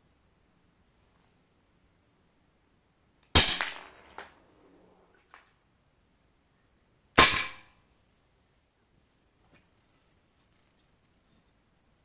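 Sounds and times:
airsoft pistol shot: 0:03.3 - 0:04.2, 0:07.2 - 0:07.7
airsoft rifle shot: 0:03.3 - 0:04.4, 0:07.2 - 0:07.8
pellet striking wooden beam: 0:03.4 - 0:04.4, 0:07.2 - 0:07.8.

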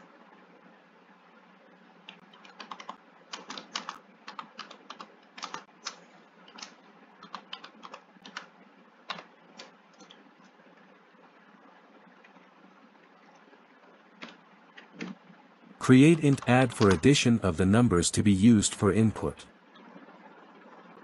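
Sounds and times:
keyboard typing: 0:02.0 - 0:08.5, 0:09.1 - 0:10.6, 0:15.8 - 0:17.8.

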